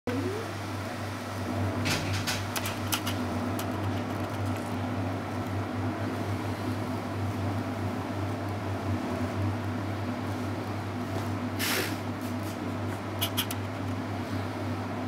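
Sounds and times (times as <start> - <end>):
sharp clicks and taps: 2.5 - 4.7.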